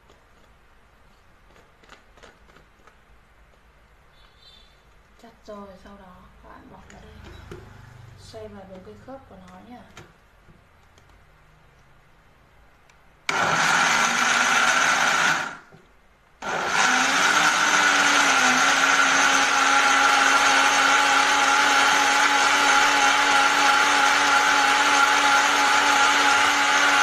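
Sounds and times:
blender motor running: 13.3 - 15.7, 16.4 - 27.0.

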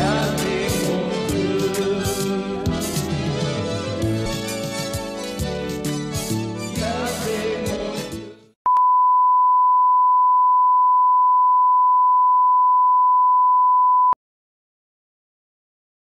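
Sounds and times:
music: 0.0 - 8.6.

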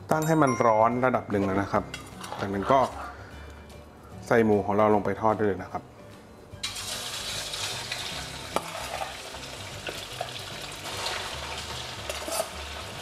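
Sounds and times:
metal spatula scraping a wok: 1.4 - 3.2, 6.8 - 10.0, 10.8 - 13.0
meat sizzling in hot oil: 6.6 - 13.0.

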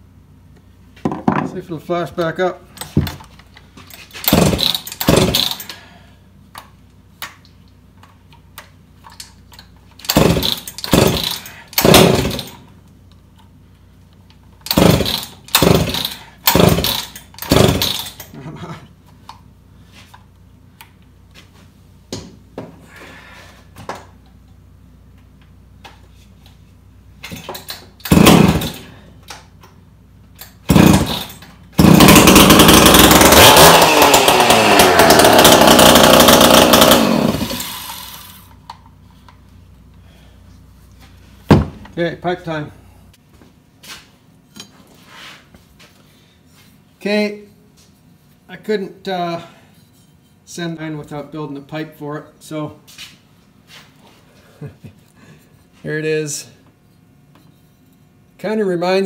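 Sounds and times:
chainsaw recoil starter pulls: 3.9 - 5.8, 9.0 - 12.7, 14.6 - 18.4, 27.3 - 29.0, 30.4 - 38.8
chainsaw running loudly: 4.2 - 5.7, 10.1 - 12.6, 14.7 - 18.2, 28.1 - 28.9, 30.7 - 38.5.

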